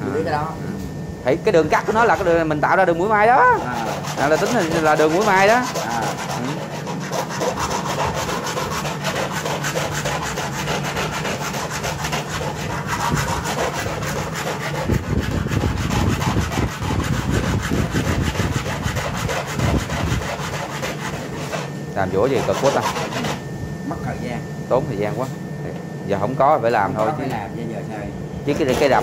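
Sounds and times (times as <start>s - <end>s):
hand file scraping: 3.2s - 23.4s, 28.5s - 29.0s.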